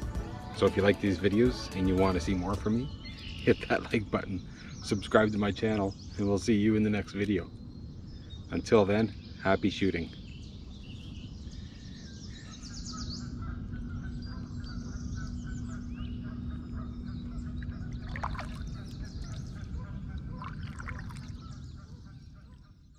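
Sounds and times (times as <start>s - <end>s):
small birds chirping: 0.0s - 22.9s
waterfowl honking: 16.2s - 22.8s.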